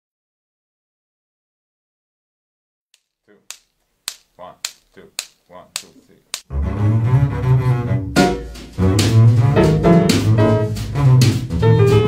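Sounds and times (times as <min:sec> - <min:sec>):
sharp count-in clicks: 0:03.0 - 0:06.5
bowed double bass: 0:06.5 - 0:12.0.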